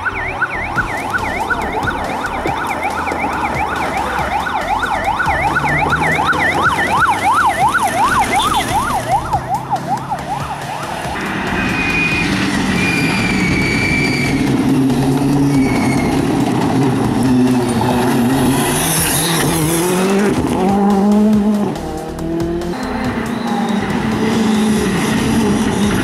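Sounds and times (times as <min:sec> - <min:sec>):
electronic siren yelping: 0:00.0 - 0:14.6
vehicle noise: 0:00.0 - 0:26.0.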